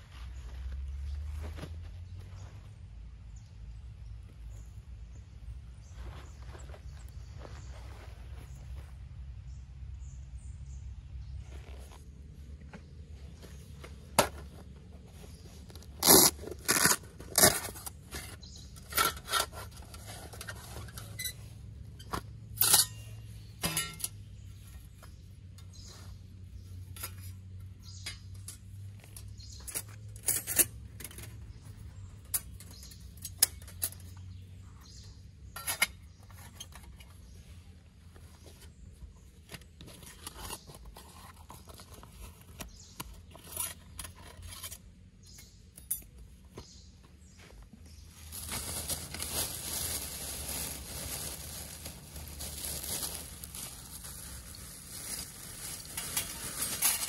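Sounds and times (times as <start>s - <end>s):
pouch rustling: 48.2s - 57.0s.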